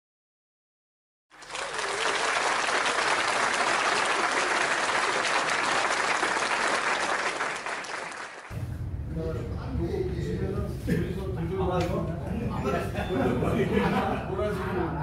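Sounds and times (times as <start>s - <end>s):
crowd applauding: 1.3s - 8.5s.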